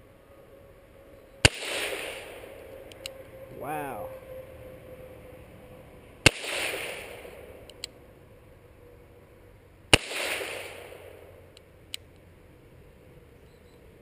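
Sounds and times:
revolver shots with echo: 0:01.4 - 0:02.5, 0:06.3 - 0:07.4, 0:10.0 - 0:11.2.

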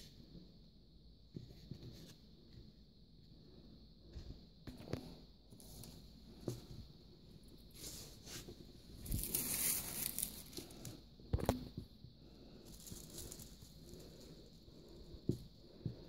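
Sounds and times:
crinkly rustling of craft items: 0:07.6 - 0:11.6, 0:12.6 - 0:15.0.

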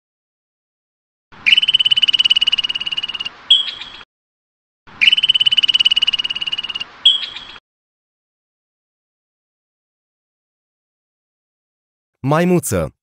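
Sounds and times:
squirrel chattering call: 0:01.5 - 0:04.0, 0:05.0 - 0:07.6.

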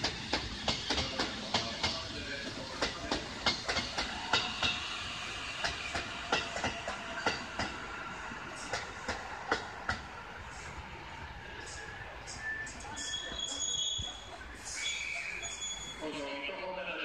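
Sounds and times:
train wheels clacking over rail joints: 0:00.0 - 0:04.9, 0:05.5 - 0:07.9, 0:08.6 - 0:10.1.

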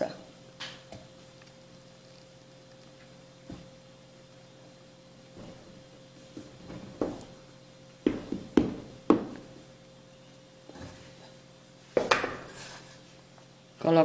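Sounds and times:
batter being stirred and scraped: 0:12.3 - 0:13.4.

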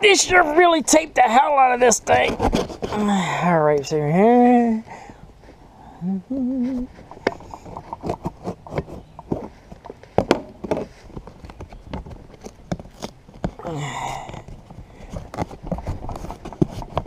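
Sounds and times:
duct tape peeling off cardboard: 0:12.3 - 0:13.5.

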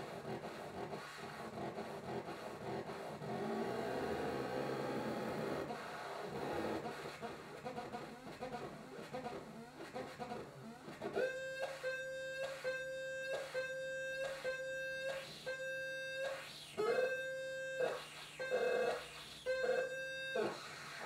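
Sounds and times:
buzzing synth tone: 0:10.2 - 0:21.0.

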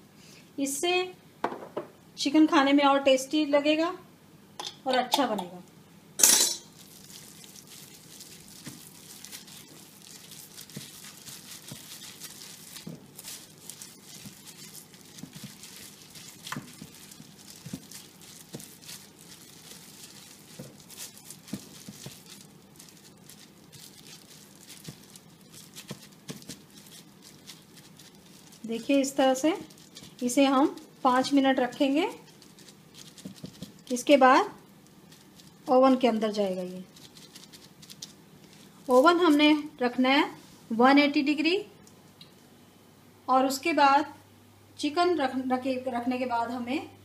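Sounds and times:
plastic glove crinkling and squelching: 0:06.6 - 0:40.5
small clicks and crackles: 0:06.8 - 0:34.1, 0:34.8 - 0:35.9, 0:36.5 - 0:39.2.

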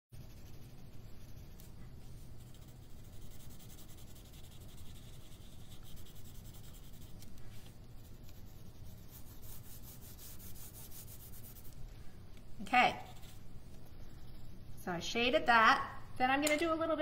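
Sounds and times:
colored pencil scratching on paper: 0:00.2 - 0:11.8, 0:12.8 - 0:13.4.

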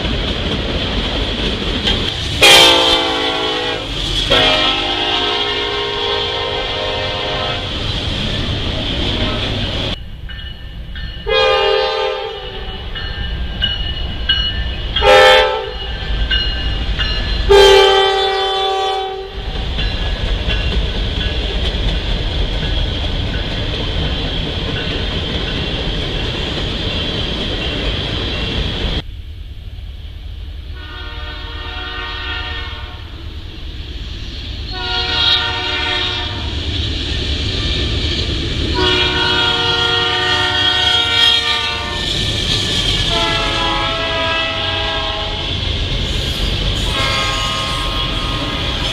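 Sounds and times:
train rumble: 0:00.0 - 0:48.9
locomotive chime horn: 0:02.4 - 0:07.7, 0:11.2 - 0:13.2, 0:15.0 - 0:19.5, 0:30.8 - 0:33.0, 0:34.7 - 0:36.5, 0:38.7 - 0:42.1, 0:43.1 - 0:45.5, 0:46.8 - 0:48.9
locomotive horn blasts: 0:02.4 - 0:07.8, 0:11.3 - 0:12.8, 0:15.0 - 0:15.8, 0:17.5 - 0:19.4, 0:30.8 - 0:33.1, 0:34.7 - 0:36.5, 0:38.7 - 0:42.1, 0:43.1 - 0:45.5, 0:46.8 - 0:48.9.

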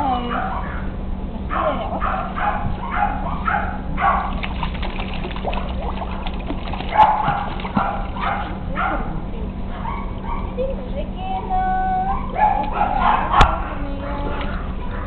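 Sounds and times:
puppies yipping and whimpering: 0:02.0 - 0:04.3, 0:09.7 - 0:10.6, 0:12.0 - 0:15.0
puppies splashing in water: 0:02.0 - 0:10.8, 0:11.9 - 0:15.0.

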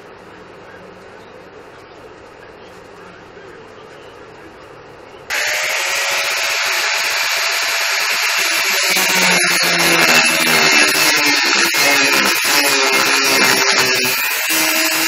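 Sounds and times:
angle grinder grinding steel: 0:05.3 - 0:15.0.

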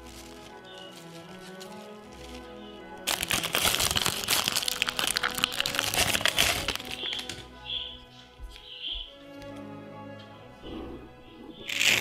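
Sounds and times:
dense crackling and crinkling: 0:00.0 - 0:07.6, 0:11.6 - 0:12.0
background music: 0:00.0 - 0:12.0.

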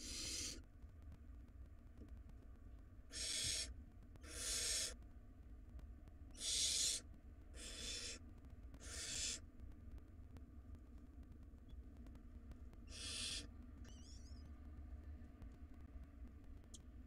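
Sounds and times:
owl nestlings hissing calls: 0:00.0 - 0:00.6, 0:03.1 - 0:05.0, 0:06.4 - 0:07.0, 0:07.6 - 0:08.2, 0:08.8 - 0:09.4, 0:12.9 - 0:14.2.

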